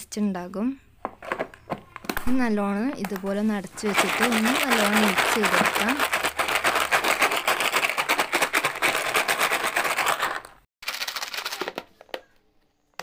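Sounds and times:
crisps rattling in plastic box: 0:03.0 - 0:11.9.

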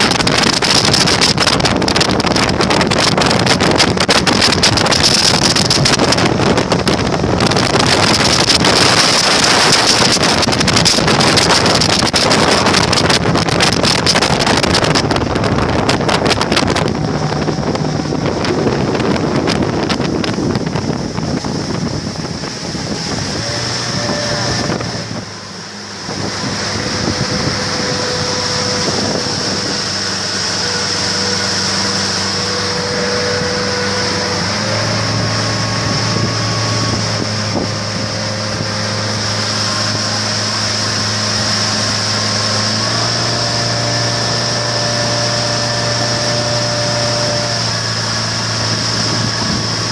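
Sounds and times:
motorboat engine hum: 0:00.0 - 0:49.9
water rushing past hull: 0:00.0 - 0:49.9
wind buffeting microphone: 0:00.0 - 0:49.9.

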